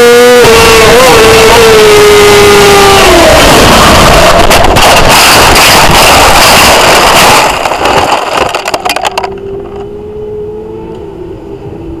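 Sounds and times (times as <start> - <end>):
wind noise: 0.0 - 12.0
motorcycle engine: 2.6 - 10.6
gravel clattering: 3.1 - 9.8.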